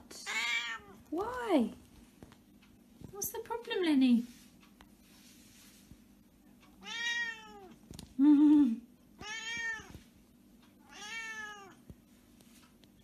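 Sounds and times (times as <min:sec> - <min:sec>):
cat meowing: 0:00.2 - 0:01.0, 0:06.8 - 0:07.7, 0:09.2 - 0:10.0, 0:10.8 - 0:11.8.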